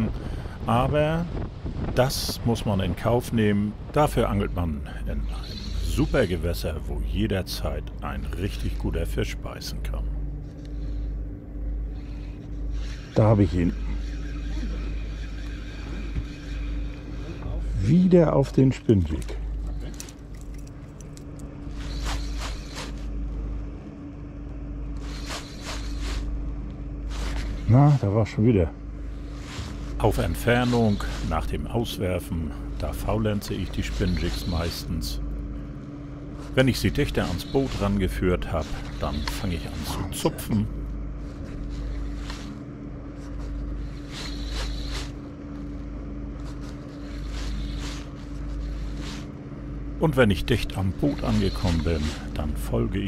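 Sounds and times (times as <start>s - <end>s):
wind rumble on microphone: 0.0s - 4.8s
low wind rumble: 0.0s - 21.8s
low hum: 0.0s - 53.0s.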